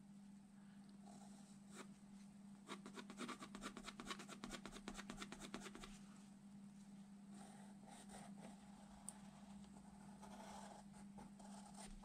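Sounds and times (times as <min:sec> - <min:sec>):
pencil scratching on paper: 0:02.7 - 0:05.9, 0:07.3 - 0:12.0.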